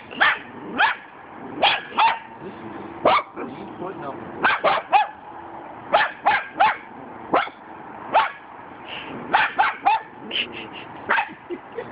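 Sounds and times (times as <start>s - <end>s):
dog barking: 0.2s - 2.4s, 3.0s - 3.5s, 4.4s - 5.2s, 5.9s - 8.5s, 9.3s - 10.2s, 11.1s - 11.4s.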